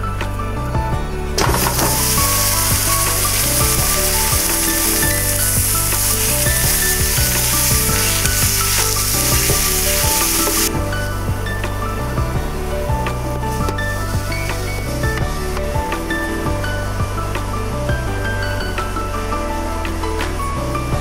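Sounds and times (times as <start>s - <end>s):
wooden spatula stirring: 1.4s - 10.7s
meat sizzling in a pot: 1.4s - 10.8s.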